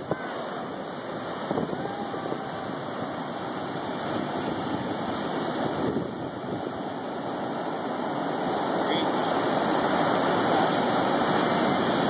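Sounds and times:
surf breaking on beach: 0:00.0 - 0:12.0.

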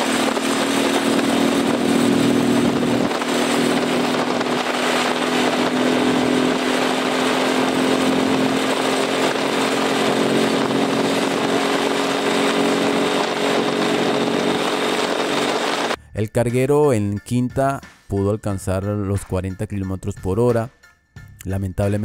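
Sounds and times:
motorcycle engine running steadily: 0:00.0 - 0:16.0.

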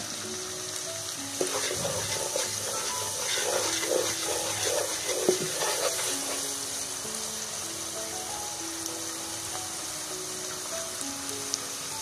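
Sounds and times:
background music with held notes: 0:00.0 - 0:12.0
masala sizzling in hot oil: 0:00.0 - 0:12.0
spoon knocking on pan: 0:01.4 - 0:06.4
wooden spoon scraping a pan: 0:01.4 - 0:06.6.

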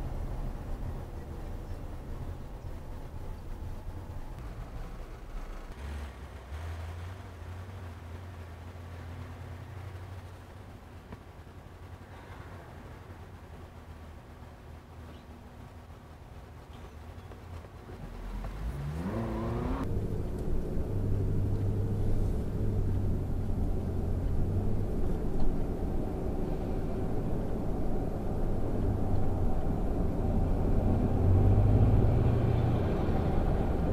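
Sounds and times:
engine and tyre rumble: 0:00.0 - 0:33.9
car engine revving: 0:04.3 - 0:10.5, 0:18.0 - 0:33.9.

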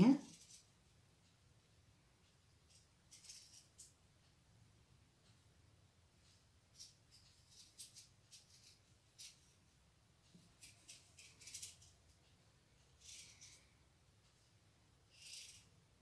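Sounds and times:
crochet hook clicks and rustles: 0:10.3 - 0:12.2.

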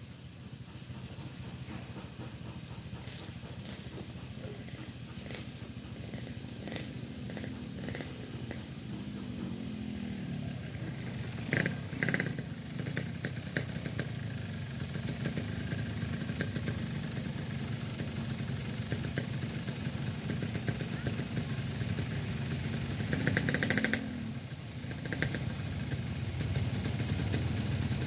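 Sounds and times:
motorcycle engines running: 0:00.0 - 0:28.0.

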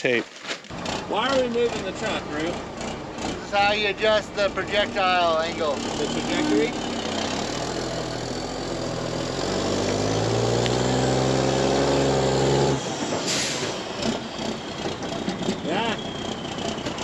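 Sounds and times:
truck diesel engine running: 0:00.7 - 0:17.0
air brake hiss: 0:13.1 - 0:13.9.

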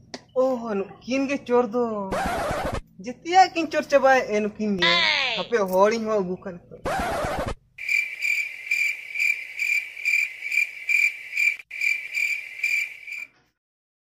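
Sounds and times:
insect chirping trill: 0:07.8 - 0:13.3.

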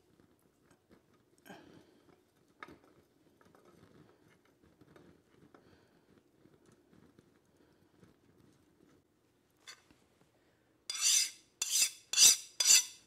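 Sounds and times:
quench oil crackling and popping: 0:00.0 - 0:09.6.

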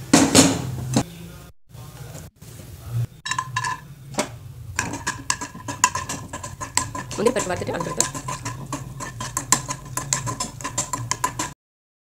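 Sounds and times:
spoon scraping metal pan: 0:03.3 - 0:11.6.

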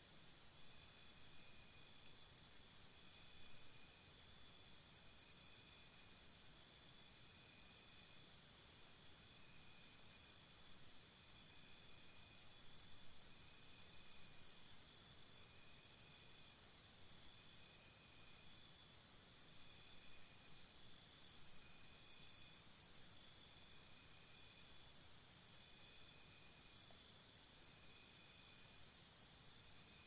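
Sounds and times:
insects chirping in trills: 0:00.0 - 0:30.0.

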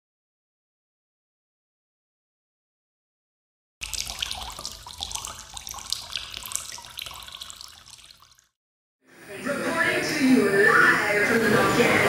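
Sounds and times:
crackling splashing sound effect: 0:03.8 - 0:08.6.

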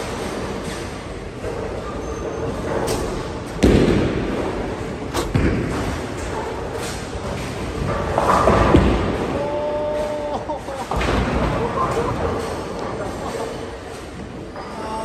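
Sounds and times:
bowling balls rolling: 0:00.0 - 0:14.8
heavy thud: 0:03.6 - 0:06.0.

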